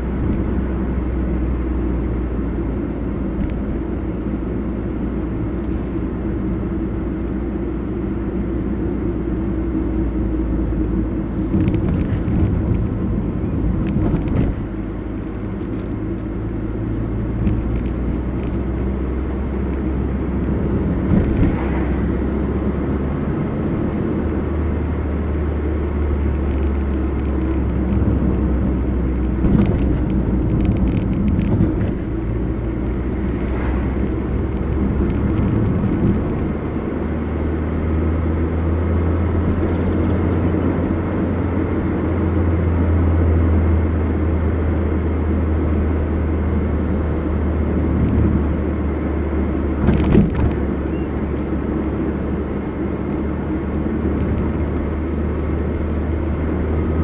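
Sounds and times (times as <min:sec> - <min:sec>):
car engine hum: 0:00.0 - 0:57.0
tyre road noise: 0:00.0 - 0:57.0.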